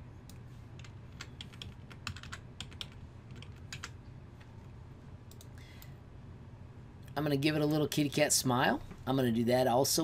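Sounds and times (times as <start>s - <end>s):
computer keyboard keystrokes: 0.8s - 4.0s.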